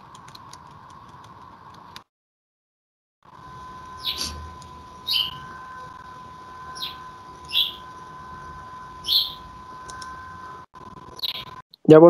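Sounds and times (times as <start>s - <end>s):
steady high whine: 3.2s - 11.6s
bird chirps: 3.9s - 5.6s, 6.6s - 8.0s, 9.0s - 9.5s, 11.1s - 11.6s.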